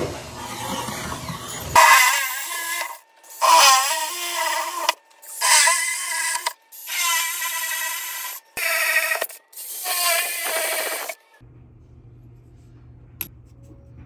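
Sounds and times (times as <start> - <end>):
drill boring into tile: 0.4 - 11.2.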